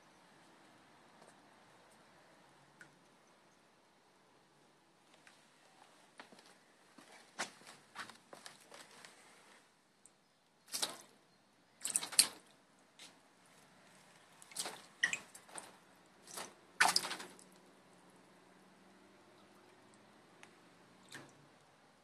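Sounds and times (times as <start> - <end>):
kitten paws splashing water: 10.7 - 11.2, 11.8 - 13.2, 13.9 - 17.7, 18.9 - 21.7.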